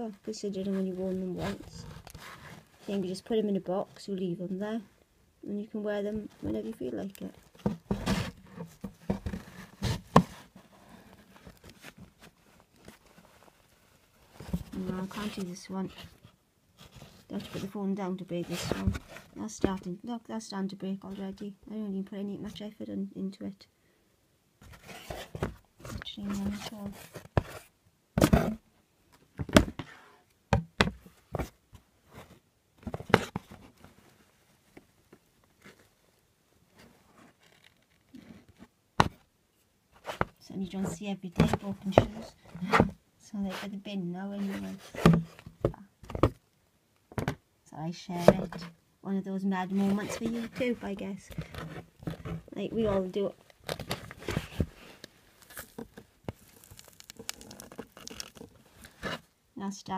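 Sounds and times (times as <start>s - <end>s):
shoe handling knocks and rubbing: 7.4s - 10.6s.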